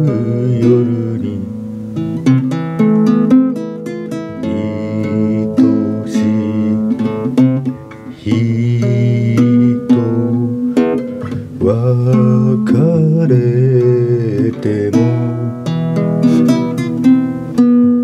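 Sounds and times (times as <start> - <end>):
man singing a ballad: 0.0 - 1.6, 4.1 - 15.7
acoustic guitar strumming: 0.0 - 18.0.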